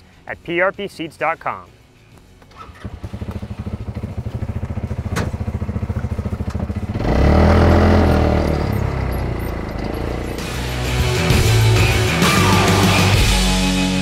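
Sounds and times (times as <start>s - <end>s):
small engine idling and revving: 2.6s - 13.0s.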